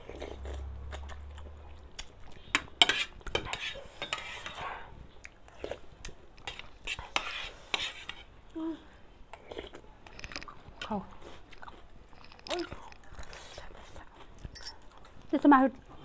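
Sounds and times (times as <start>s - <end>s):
cutlery scraping metal plate: 2.8s - 4.6s
mouth sounds of eating: 8.5s - 16.0s.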